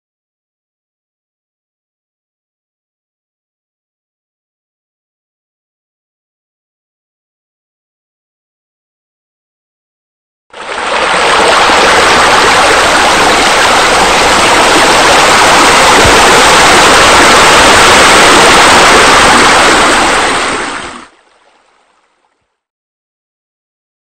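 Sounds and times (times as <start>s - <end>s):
water feature splashing: 10.6s - 22.4s.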